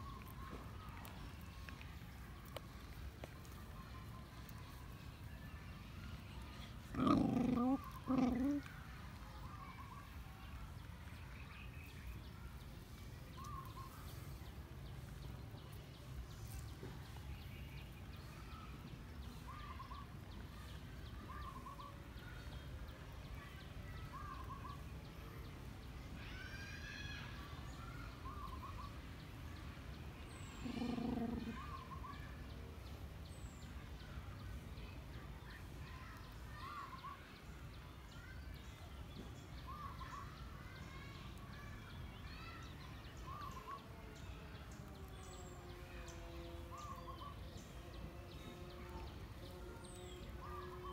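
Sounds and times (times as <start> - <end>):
small birds chirping: 0.0 - 50.9
dog growling: 6.8 - 8.7, 30.5 - 31.6.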